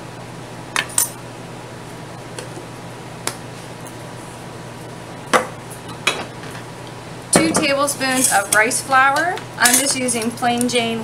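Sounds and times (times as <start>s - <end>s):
kitchen items knocking and clicking: 7.4s - 7.8s.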